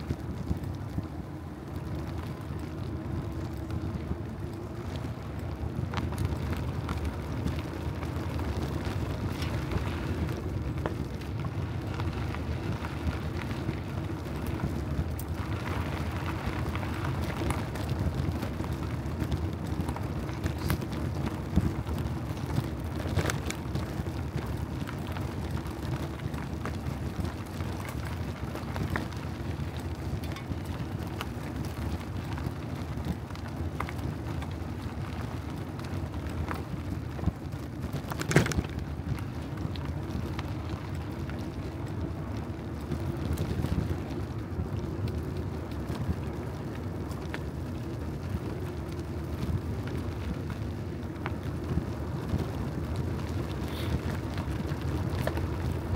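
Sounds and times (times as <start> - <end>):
bicycle clicks and rattles: 0.0 - 55.9
tyres rumbling on road: 0.0 - 55.9.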